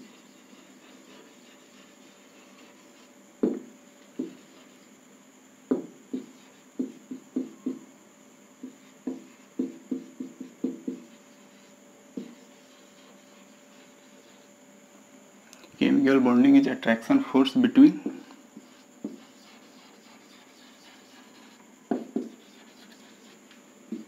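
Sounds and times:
marker tapping on whiteboard: 3.4s - 4.6s, 5.7s - 7.8s, 8.6s - 11.1s, 12.2s - 13.1s, 18.0s - 24.0s.

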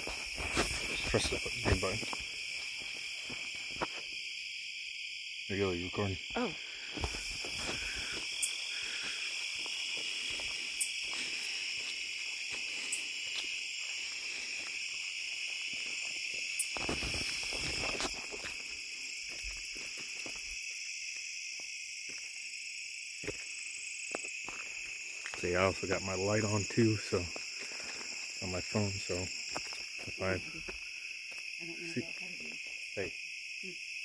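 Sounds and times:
footsteps through grass: 0.0s - 4.1s, 7.0s - 20.5s
crickets and night insects chirping: 0.0s - 34.0s.

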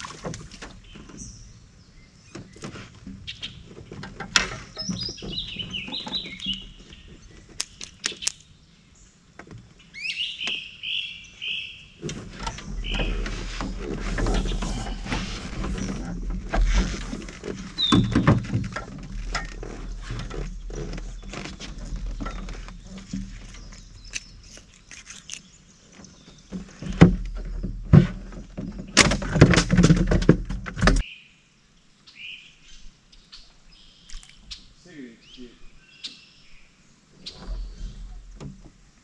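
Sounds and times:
bird chirping: 4.6s - 9.2s, 9.8s - 16.2s, 17.8s - 18.8s, 19.8s - 27.9s, 31.0s - 38.5s.

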